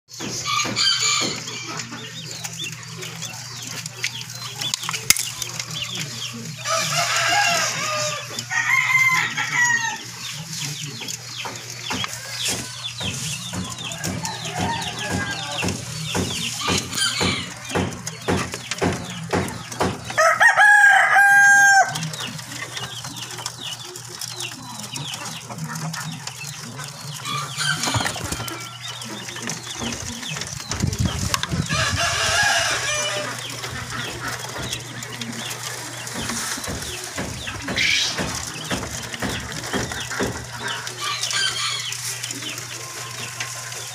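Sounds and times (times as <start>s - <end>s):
quails chirping and calling: 0.1s - 43.9s
loud crowing call: 6.6s - 10.1s, 20.1s - 22.0s.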